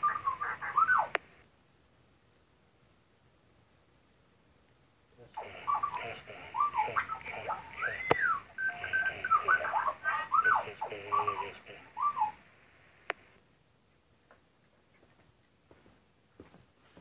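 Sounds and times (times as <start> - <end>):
tinny electronic beeps and whistles: 5.4 - 12.4.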